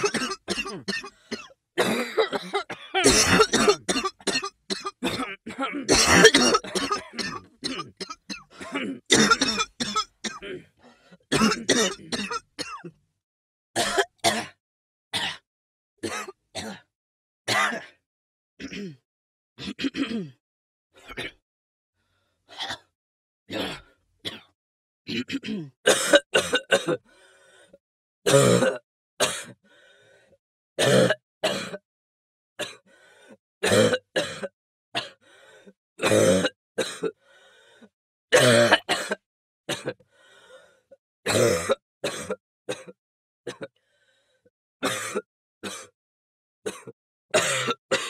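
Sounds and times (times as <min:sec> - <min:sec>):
person clearing throat: 0:00.0 - 0:10.7, 0:11.3 - 0:12.9, 0:18.6 - 0:19.0, 0:19.6 - 0:20.4, 0:25.1 - 0:27.0, 0:28.3 - 0:29.6, 0:30.8 - 0:31.8, 0:36.0 - 0:37.1, 0:38.4 - 0:40.0, 0:41.3 - 0:43.7, 0:46.7 - 0:48.0
person coughing: 0:00.0 - 0:10.7, 0:11.3 - 0:12.9, 0:18.6 - 0:19.0, 0:19.6 - 0:20.4, 0:38.4 - 0:40.0, 0:46.7 - 0:48.0
raspy inhale: 0:22.0 - 0:22.4, 0:27.1 - 0:27.8, 0:29.6 - 0:30.4, 0:32.9 - 0:33.4, 0:35.2 - 0:35.8, 0:37.2 - 0:38.0, 0:40.1 - 0:41.0, 0:43.8 - 0:44.5.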